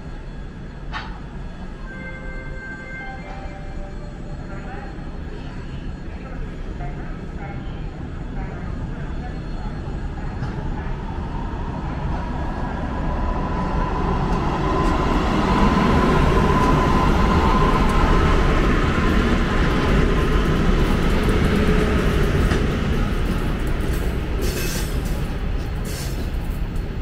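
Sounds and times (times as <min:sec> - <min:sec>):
electric locomotive passing: 0:00.0 - 0:27.0
train coaches rolling past: 0:08.0 - 0:27.0.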